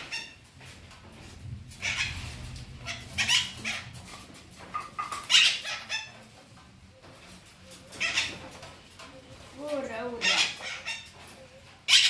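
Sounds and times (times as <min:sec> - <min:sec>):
parrot squawking: 0:00.0 - 0:00.4, 0:01.8 - 0:06.3, 0:07.9 - 0:08.7, 0:10.0 - 0:12.0.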